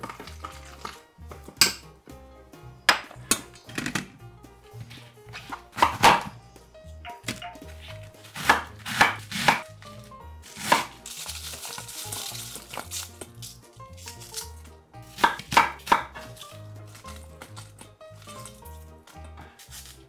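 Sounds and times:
knife chopping cabbage on a board: 0:05.4 - 0:06.4, 0:07.3 - 0:20.0
cabbage pieces rustling: 0:07.6 - 0:20.0.

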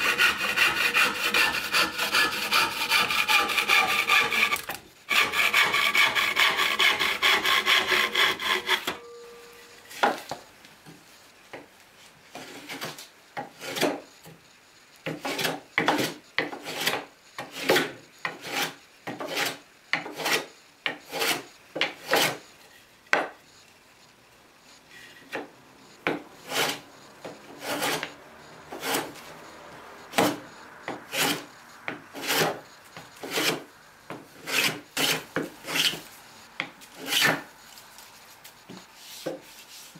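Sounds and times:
hand plane shaving wood: 0:00.0 - 0:08.9, 0:15.2 - 0:20.5, 0:21.1 - 0:21.4, 0:22.0 - 0:22.4, 0:27.6 - 0:29.2, 0:31.1 - 0:31.5, 0:32.1 - 0:32.6, 0:33.2 - 0:33.7, 0:34.4 - 0:36.0
hand saw cutting wood: 0:00.0 - 0:09.0, 0:15.2 - 0:20.5, 0:21.1 - 0:22.4, 0:26.4 - 0:26.8, 0:27.6 - 0:28.1, 0:28.7 - 0:29.2, 0:31.1 - 0:31.5, 0:32.1 - 0:32.6, 0:33.2 - 0:33.7, 0:34.4 - 0:36.0.

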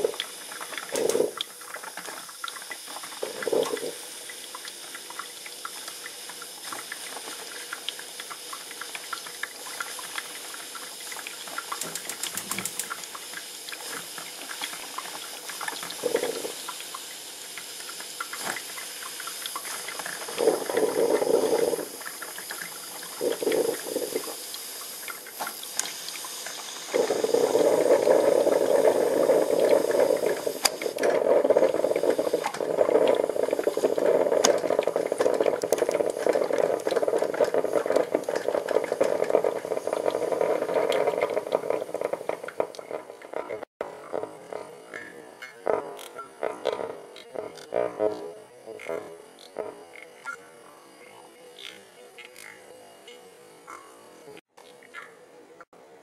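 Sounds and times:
coffee maker hissing: 0:00.0 - 0:52.5
coffee maker gurgling: 0:00.0 - 0:56.0.

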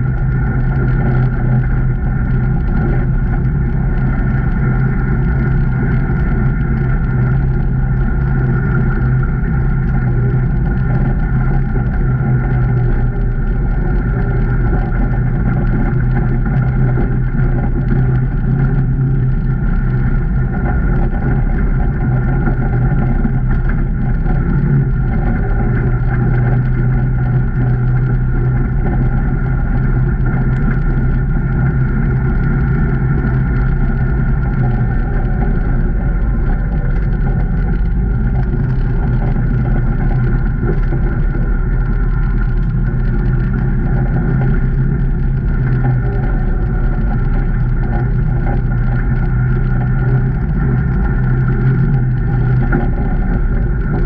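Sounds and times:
vehicle engine running steadily: 0:00.0 - 0:54.0.

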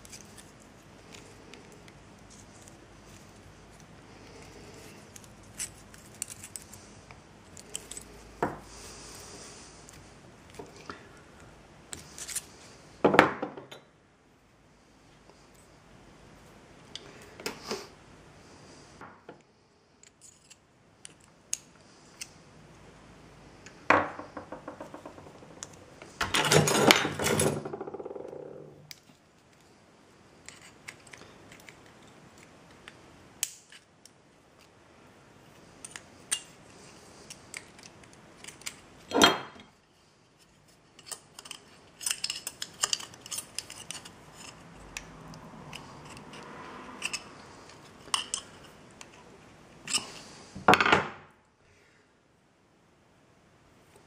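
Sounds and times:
small metal parts clinking: 0:41.0 - 0:44.6.

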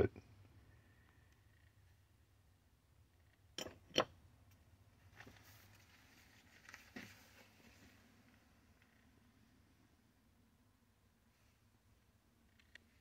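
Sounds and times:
metal parts knocking on wooden bench: 0:03.6 - 0:04.2.

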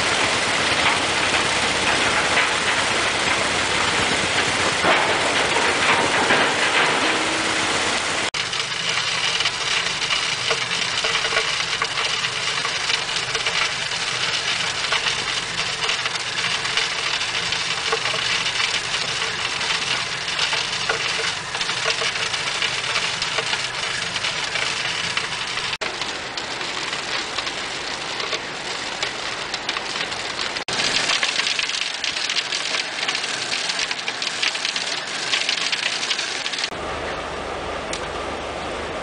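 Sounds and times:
plant machinery running: 0:00.0 - 0:39.0.

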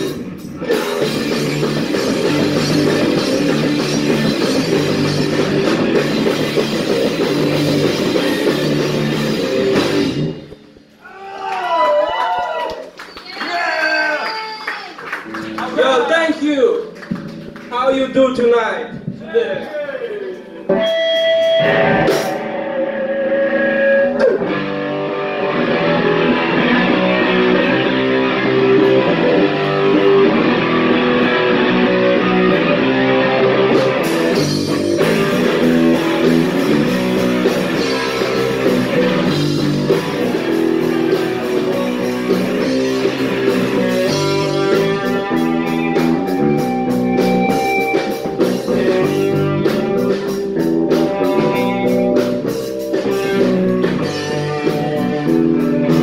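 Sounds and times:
drums and cymbals: 0:00.0 - 0:10.8, 0:20.6 - 0:22.6, 0:26.9 - 0:56.0
punk rock band playing live: 0:00.0 - 0:10.9, 0:20.3 - 0:56.0
electric guitar: 0:00.0 - 0:11.1, 0:16.8 - 0:17.7, 0:18.9 - 0:56.0
bass guitar: 0:00.0 - 0:11.2, 0:15.2 - 0:56.0.

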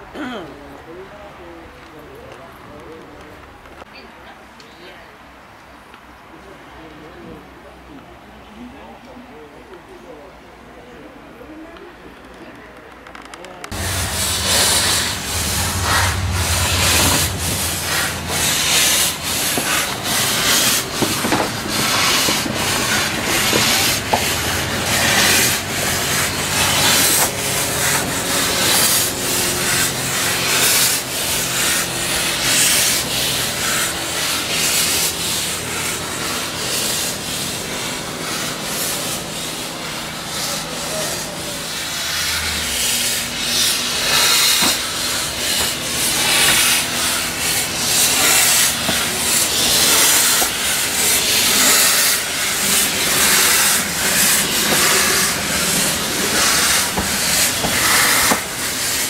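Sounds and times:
steam hissing: 0:13.7 - 0:59.0
steam locomotive chuffing: 0:13.7 - 0:59.0.

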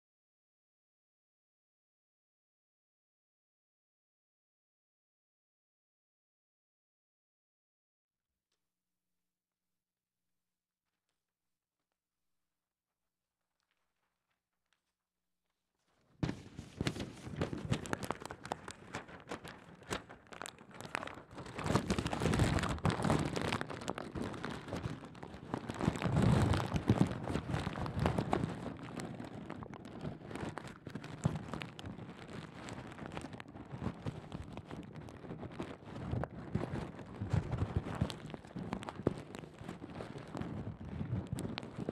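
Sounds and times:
paper crumpling on microphone: 0:13.4 - 0:15.0, 0:15.8 - 0:41.9.

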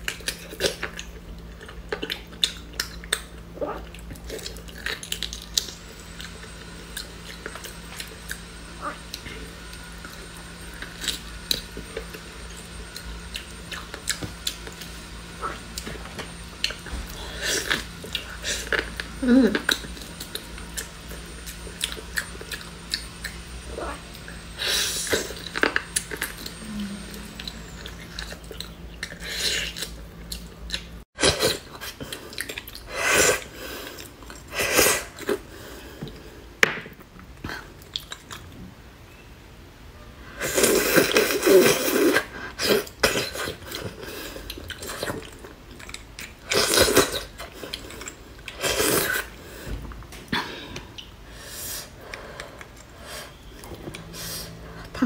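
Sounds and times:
close-up chewing: 0:00.0 - 0:33.0, 0:40.9 - 0:50.1, 0:51.9 - 0:55.0.

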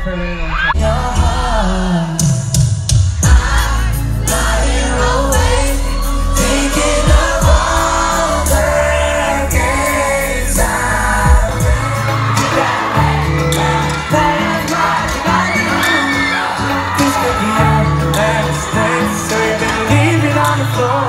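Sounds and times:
amplified pop backing music: 0:00.0 - 0:21.0
people singing: 0:00.8 - 0:02.4, 0:03.1 - 0:21.0
steady drum beat: 0:02.2 - 0:15.6.

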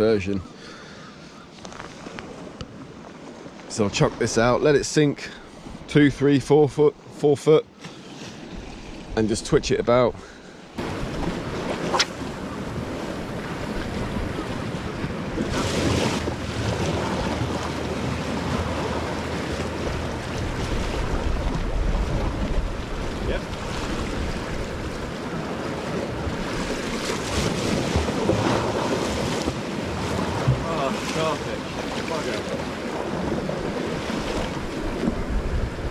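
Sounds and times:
surf on rocky shore: 0:00.0 - 0:35.9
wind buffeting microphone: 0:10.8 - 0:35.9.

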